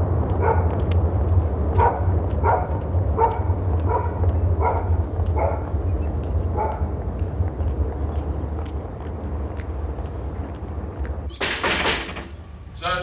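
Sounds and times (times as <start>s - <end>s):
steady low rumble: 0.0s - 11.3s
dog barking: 0.4s - 0.8s, 1.8s - 5.7s, 6.5s - 6.9s.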